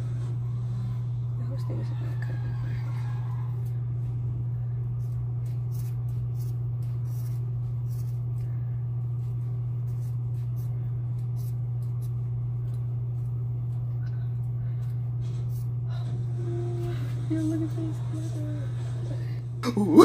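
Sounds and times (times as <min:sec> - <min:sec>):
steady low hum: 0:00.0 - 0:20.0
scissors snipping hair: 0:05.0 - 0:08.5, 0:09.8 - 0:15.8.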